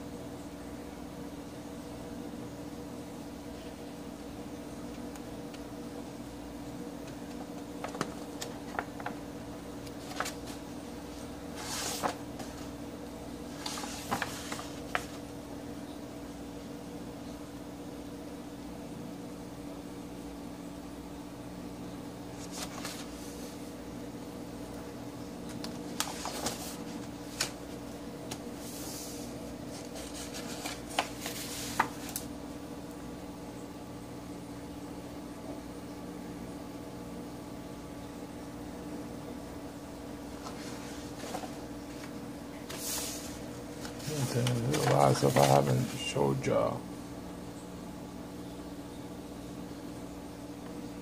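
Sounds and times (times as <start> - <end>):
steady low hum: 0.0 - 51.0
paper crinkles and taps: 7.0 - 9.2, 9.8 - 10.6, 13.6 - 15.2, 25.5 - 28.5, 29.7 - 32.3, 43.8 - 45.9
sketchbook pages turning: 7.0 - 12.8, 13.5 - 15.3, 22.4 - 23.6, 25.5 - 32.3, 40.4 - 46.2
papery swishes: 9.9 - 12.8, 13.5 - 15.2, 25.9 - 27.9, 28.6 - 32.3, 40.4 - 45.9.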